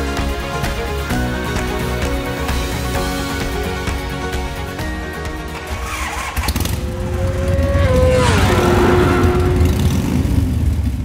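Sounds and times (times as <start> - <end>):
motorcycle engine passing: 5.6 - 11.0.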